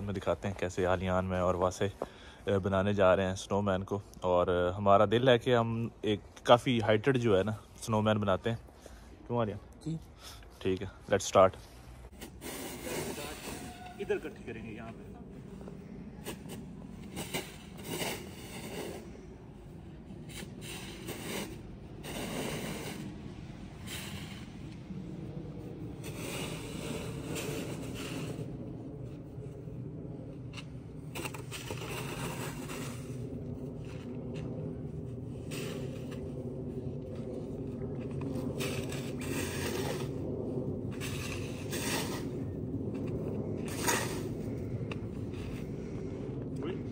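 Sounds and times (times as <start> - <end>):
steady low rumble: 0.0 - 46.9
snow shovels scraping snow: 11.5 - 14.9, 16.2 - 19.2, 20.2 - 23.1, 23.7 - 24.7, 26.0 - 28.5, 31.2 - 33.2, 38.3 - 40.2, 41.0 - 42.4, 43.6 - 44.4.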